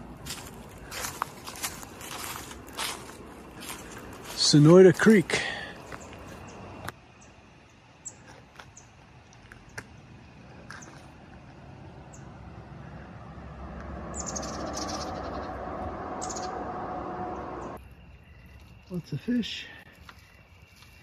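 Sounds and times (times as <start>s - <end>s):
bird chirps: 13.8s - 21.0s.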